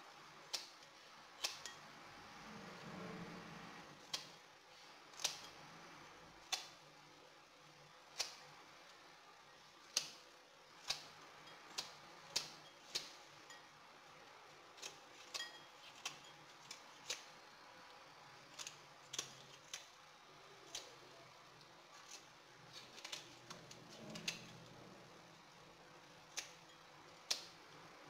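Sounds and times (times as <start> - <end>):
scissors snipping leaves: 0.5 - 1.8, 4.1 - 4.4, 5.1 - 5.5, 6.4 - 6.8, 8.1 - 8.4, 9.9 - 10.2, 11.7 - 13.2, 14.8 - 17.4, 18.4 - 21.1, 22.0 - 24.7, 26.3 - 27.6.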